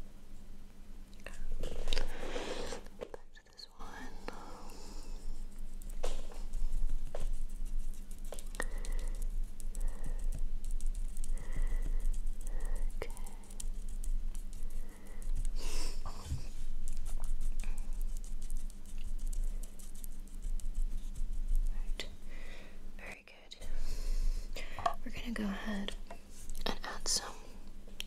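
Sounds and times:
steady low hum: 0.0 - 28.0
soft tapping and rubbing on lens: 5.2 - 22.2, 24.6 - 27.3.

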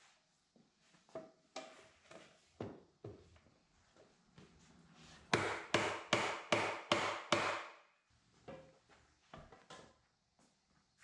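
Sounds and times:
mallet striking wood: 5.3 - 7.8.

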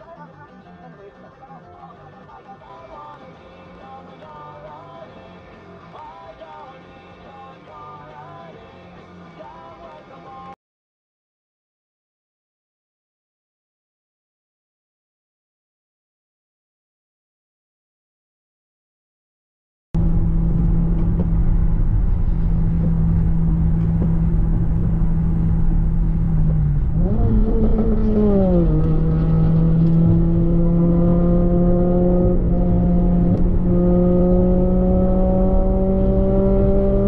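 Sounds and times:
car engine accelerating: 20.0 - 37.0.

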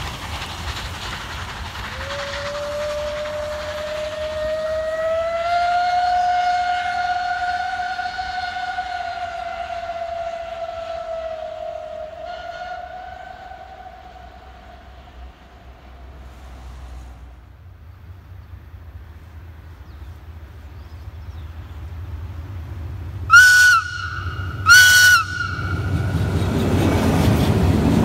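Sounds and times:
steam locomotive whistle: 1.9 - 15.6, 23.3 - 27.6.

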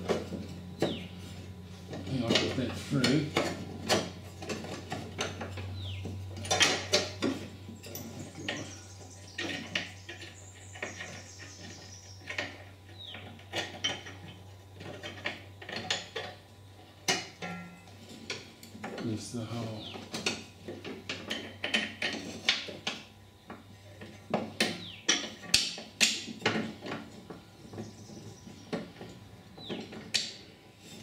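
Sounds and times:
steady low hum: 0.0 - 31.0
metallic clinks and scrapes: 6.3 - 12.7.

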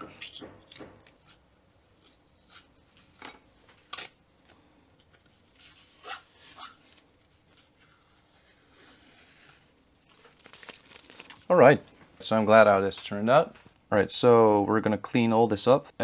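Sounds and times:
tape and paper rustling: 2.0 - 11.6.

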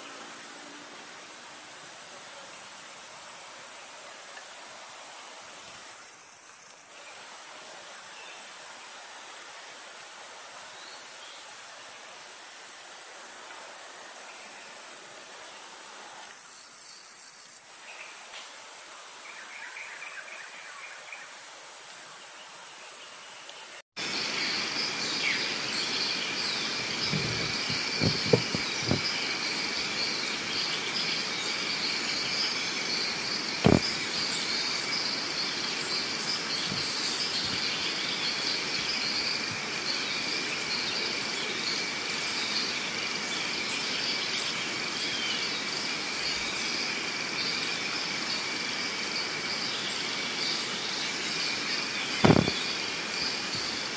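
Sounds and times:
insects droning: 0.0 - 53.9
birds chirping: 24.0 - 46.6, 49.1 - 53.9
soft knocks: 27.0 - 29.0, 33.6 - 33.9, 52.2 - 52.5
short thump: 27.0 - 29.1, 33.6 - 33.9, 52.2 - 52.6.

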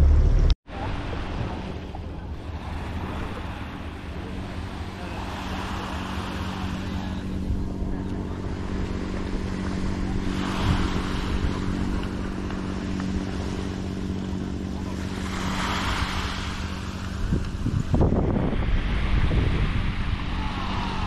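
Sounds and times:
motorboat engine drone: 0.0 - 21.0
small waves washing on sand: 0.7 - 21.0.

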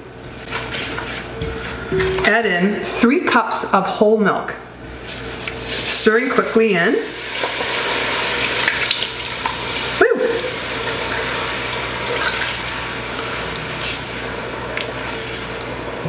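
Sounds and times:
wooden spoon stirring: 0.2 - 2.4
milk sizzling in roux: 5.0 - 15.8.

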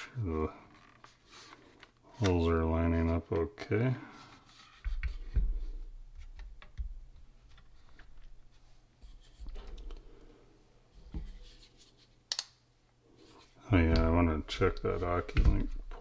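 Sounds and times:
handling clicks and soft knocks: 13.7 - 16.0.

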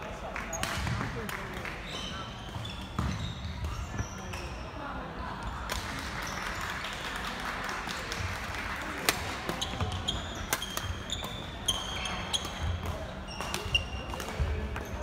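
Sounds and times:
shoes squeaking on floor: 1.8 - 4.7, 9.5 - 15.0.

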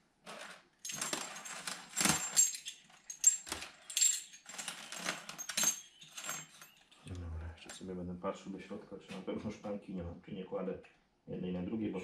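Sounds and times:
metal tappets clinking: 0.8 - 7.1.

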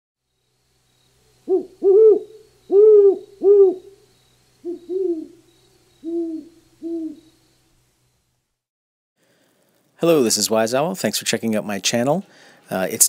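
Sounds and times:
owl hooting: 0.8 - 7.8.

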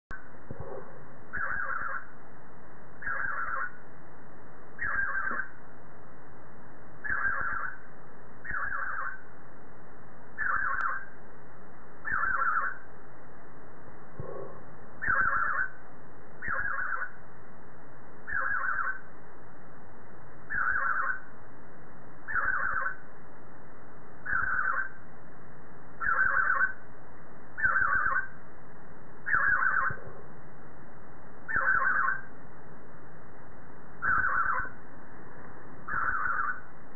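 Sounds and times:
budgerigar rasping call: 1.3 - 2.1, 3.0 - 3.8, 4.8 - 5.6, 7.0 - 7.8, 8.4 - 9.2, 10.4 - 11.1, 12.0 - 12.8, 15.0 - 15.8, 16.4 - 17.2, 18.2 - 19.1, 20.5 - 21.3, 22.3 - 23.0, 24.2 - 25.0, 26.0 - 26.8, 27.6 - 28.4, 29.2 - 30.0, 31.5 - 32.3, 34.0 - 34.8, 35.8 - 36.7.

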